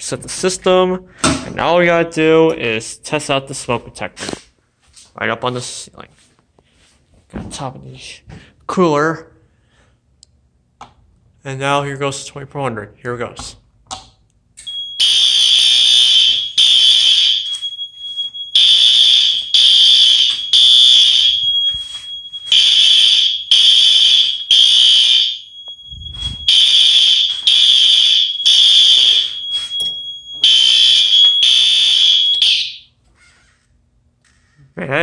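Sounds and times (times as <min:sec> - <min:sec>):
fire alarm horn blasts: 0:14.7 - 0:33.0
thin steady high tone: 0:25.4 - 0:32.4.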